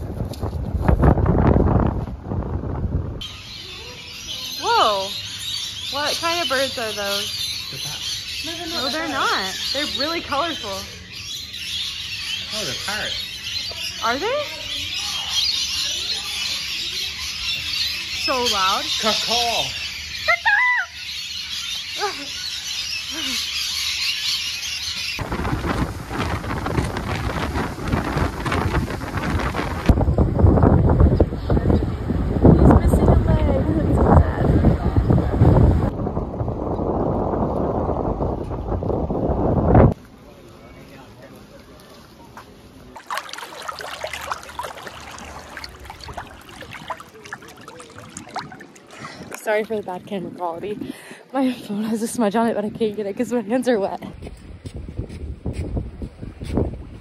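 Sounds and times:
wind on microphone: 0:00.0 - 0:03.3, 0:25.2 - 0:40.0, 0:43.1 - 0:51.2, 0:54.0 - 0:57.0
seawater lapping and splashing: 0:41.6 - 0:51.3
boat wake rushing: 0:42.9 - 0:51.2.

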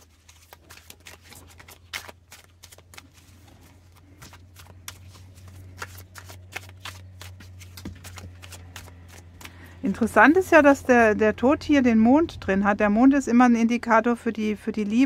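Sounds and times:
cards being shuffled: 0:00.0 - 0:10.4
low steady hum: 0:00.0 - 0:15.0.

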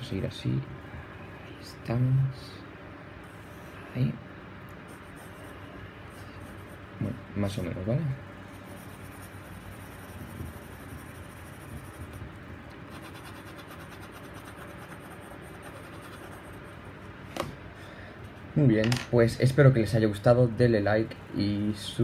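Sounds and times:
pencil scratching on paper: 0:04.9 - 0:06.8, 0:08.5 - 0:12.3, 0:12.9 - 0:16.9.

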